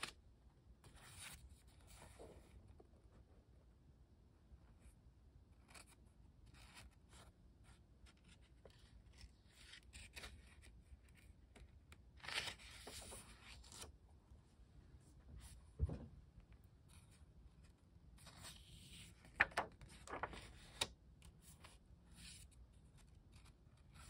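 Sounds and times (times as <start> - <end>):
paper pages rustling: 0.8 - 2.6, 8.1 - 13.9, 18.2 - 24.0.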